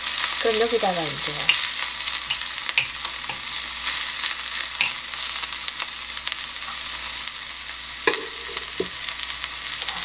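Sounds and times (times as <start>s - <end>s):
crackles and pops: 0.0s - 7.4s
vegetables sizzling in hot oil: 0.0s - 10.0s.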